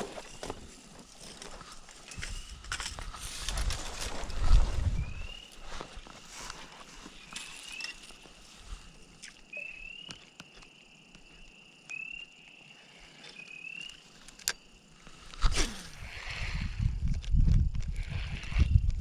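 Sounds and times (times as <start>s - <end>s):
spring peepers calling: 4.9s - 5.9s, 6.8s - 8.8s, 9.4s - 14.9s.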